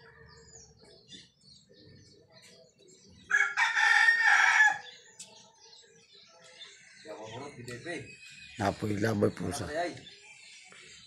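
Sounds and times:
rooster crowing: 0:03.3 - 0:04.9.

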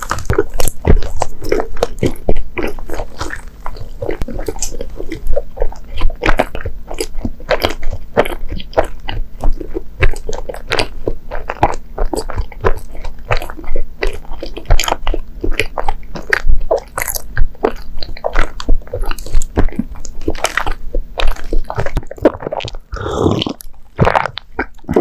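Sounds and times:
mouth chewing clicks and smacks: 0:00.0 - 0:25.0
sip from a cup: 0:22.9 - 0:23.6.

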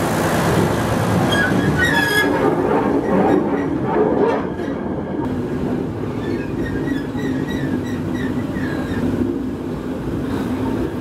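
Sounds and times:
railway wagon rumbling on rails: 0:00.0 - 0:11.0
high squeaks from wheels: 0:01.3 - 0:03.8, 0:06.1 - 0:09.2.

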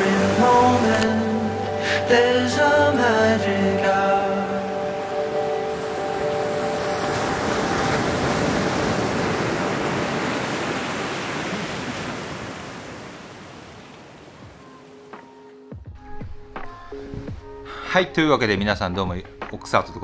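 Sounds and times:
ocean waves breaking: 0:00.0 - 0:15.6.

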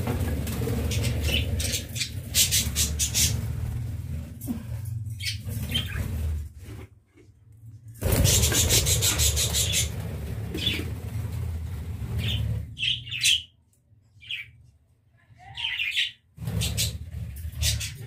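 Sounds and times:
budgies chirping: 0:00.8 - 0:03.5, 0:08.0 - 0:10.0, 0:12.1 - 0:13.5, 0:14.2 - 0:14.5.

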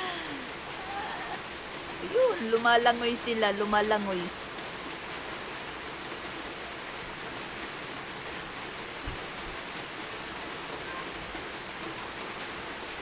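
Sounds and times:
raindrops ticking on surfaces: 0:00.0 - 0:13.0
steady rain falling: 0:00.0 - 0:13.0.

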